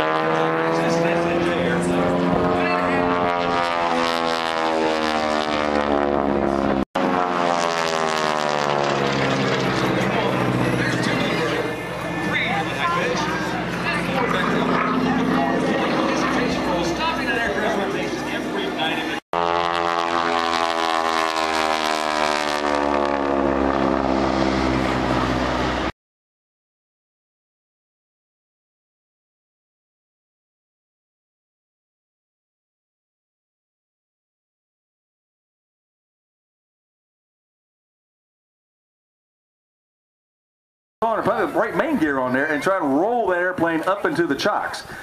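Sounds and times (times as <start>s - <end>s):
propeller plane flying overhead: 0.0s - 26.0s, 41.0s - 45.0s.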